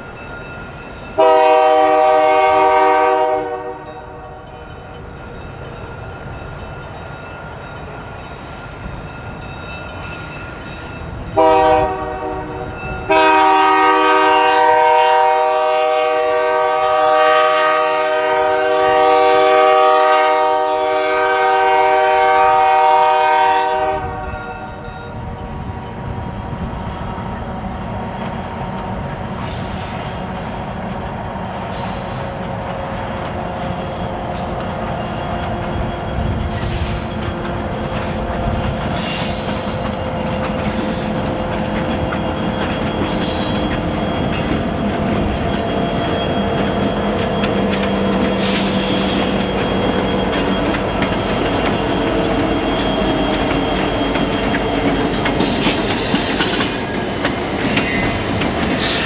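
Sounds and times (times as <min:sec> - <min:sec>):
train rumble: 0:00.0 - 0:59.0
locomotive air horn blasts: 0:01.2 - 0:04.0, 0:11.4 - 0:24.9.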